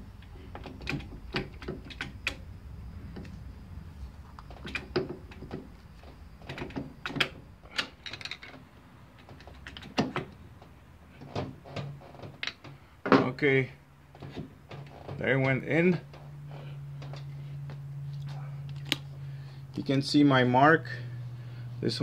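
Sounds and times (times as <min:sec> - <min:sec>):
metal parts clicking and tapping: 0:06.4 - 0:08.6.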